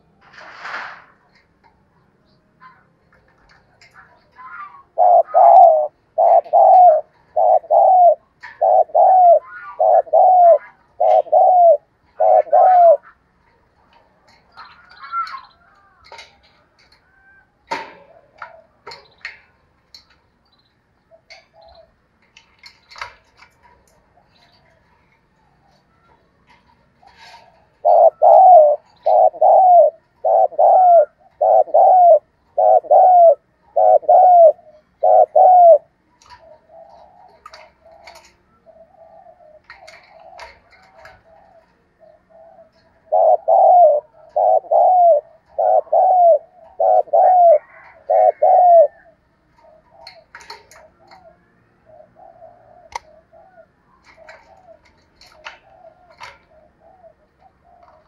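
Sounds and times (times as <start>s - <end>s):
dove cooing: 2.6s - 19.5s, 21.0s - 58.0s
faint clicks: 49.5s - 51.3s, 52.9s - 53.2s.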